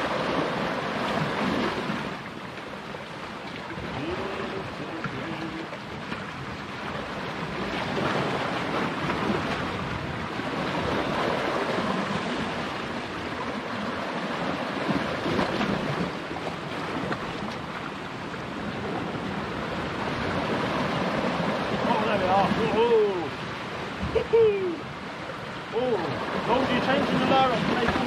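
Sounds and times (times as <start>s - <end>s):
surf washing against rocks: 0.0s - 28.0s
wind buffeting microphone: 3.6s - 25.1s.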